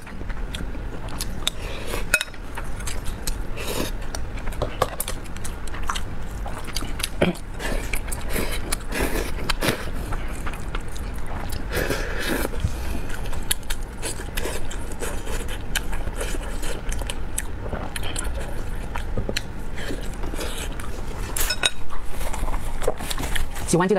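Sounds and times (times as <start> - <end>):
chewing: 0.0 - 23.7
chopsticks scraping glass bowl: 21.3 - 21.8.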